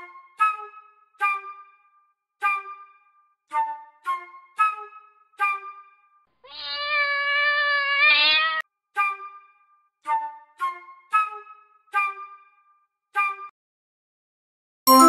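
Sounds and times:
cat meowing: 6.4 - 8.6.

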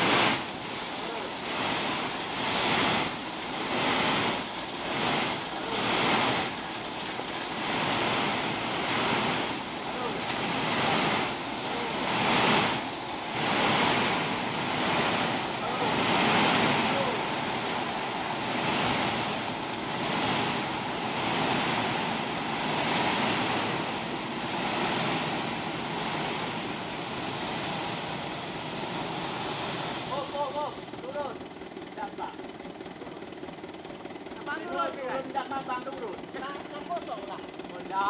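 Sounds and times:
gravel pouring from truck bed: 0.0 - 31.9.

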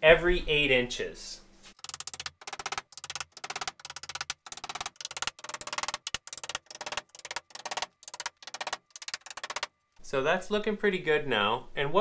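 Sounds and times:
hammer striking nails into metal: 1.8 - 9.7.

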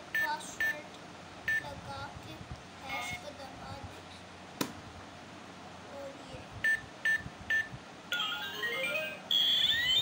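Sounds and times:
toy keypad beeping: 6.6 - 10.0.

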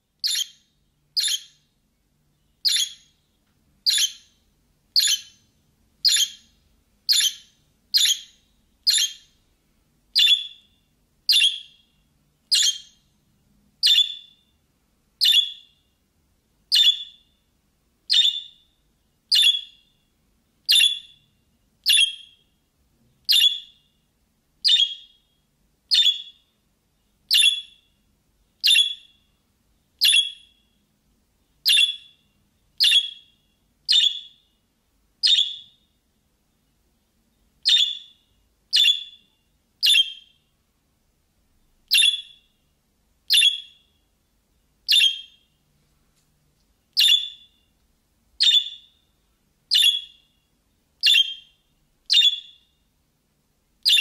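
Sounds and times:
budgerigar chirping: 0.2 - 1.6, 2.6 - 3.1, 3.8 - 4.4, 5.0 - 5.4, 6.0 - 6.5, 7.1 - 9.4, 10.2 - 10.7, 11.3 - 11.8, 12.5 - 13.0, 13.8 - 14.4, 15.2 - 15.8, 16.7 - 17.2, 18.1 - 18.6, 19.3 - 19.8, 20.7 - 21.2, 21.8 - 22.4, 23.3 - 23.8, 24.6 - 25.2, 25.9 - 26.4, 27.3 - 27.9, 28.6 - 29.2, 30.0 - 30.6, 31.6 - 32.2, 32.8 - 34.5, 35.2 - 35.8, 37.6 - 40.4, 41.9 - 42.5, 43.3 - 43.9, 44.9 - 45.4, 47.0 - 47.6, 48.4 - 49.0, 49.7 - 50.3, 51.0 - 52.7.

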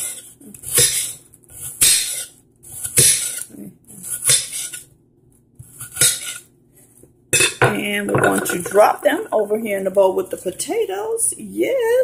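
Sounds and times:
knife slicing onion on wooden board: 0.0 - 3.4, 4.0 - 4.8, 5.6 - 6.4.

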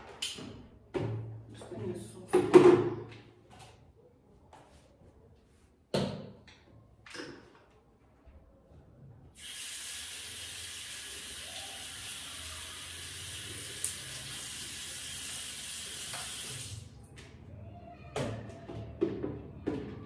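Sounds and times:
tap water running into sink: 9.4 - 16.8.

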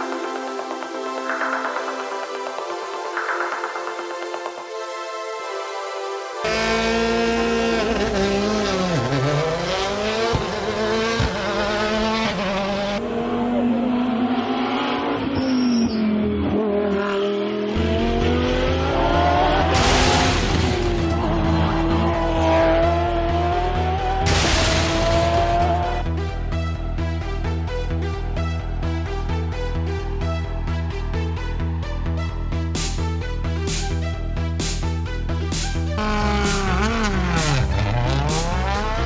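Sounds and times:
electronic music with steady beat: 0.0 - 11.6, 25.1 - 39.0
race car engine revving: 6.4 - 26.2, 36.0 - 39.0.

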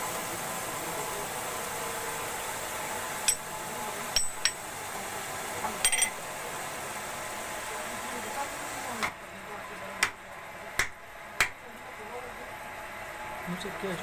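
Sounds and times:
steady background noise: 0.0 - 14.0
hammer tapping on metal: 3.3 - 3.5, 4.2 - 4.6, 10.8 - 11.6.

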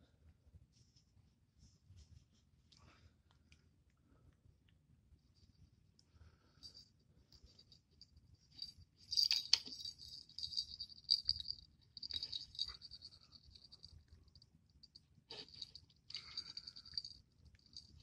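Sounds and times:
small bell jingling: 6.6 - 18.0.

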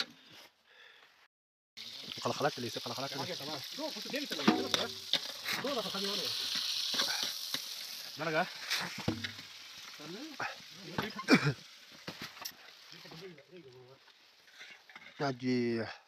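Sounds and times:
cooking pot sizzling: 1.8 - 15.9
men talking: 2.1 - 6.4, 8.0 - 9.0, 10.0 - 11.6, 12.9 - 14.1, 15.2 - 16.0.

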